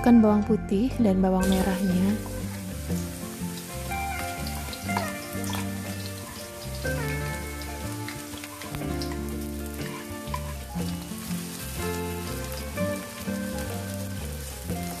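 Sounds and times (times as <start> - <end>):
background music with held notes: 0.0 - 15.0
garlic sizzling in hot oil: 1.4 - 15.0
small oil pops: 4.5 - 6.3, 7.6 - 10.6.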